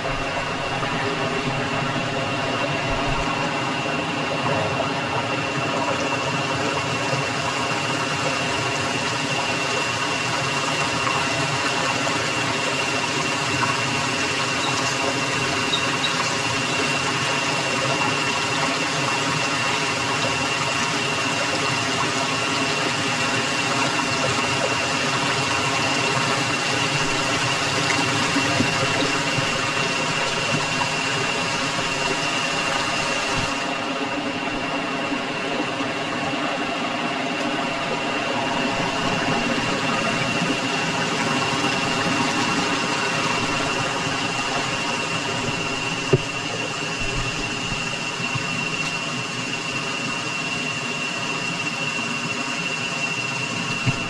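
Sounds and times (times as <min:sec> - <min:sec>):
stream rushing: 0:00.0 - 0:05.2, 0:23.3 - 0:54.0.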